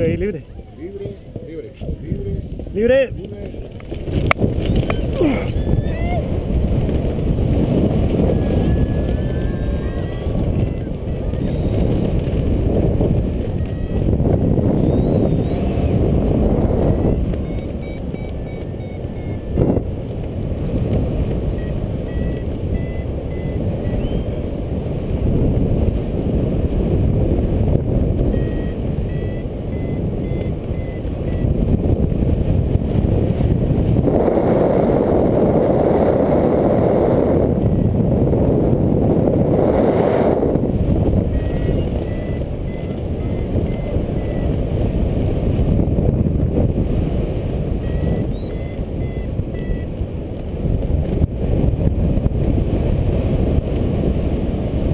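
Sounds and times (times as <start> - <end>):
wind rushing over microphone: 0.0 - 54.9
faint short beeps: 13.4 - 16.0, 16.8 - 19.8, 21.5 - 24.4, 28.3 - 31.6, 41.3 - 44.5, 47.8 - 49.9.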